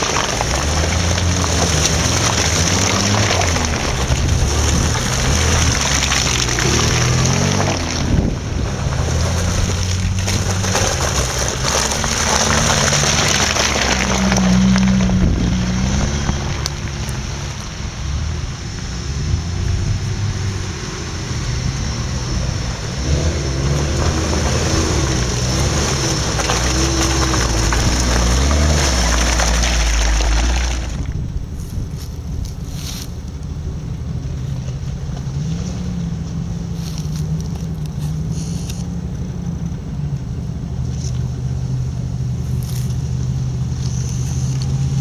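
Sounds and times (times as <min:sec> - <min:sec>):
vehicle passing close: 0:00.0 - 0:33.1
off-road vehicle engines revving: 0:00.0 - 0:45.0.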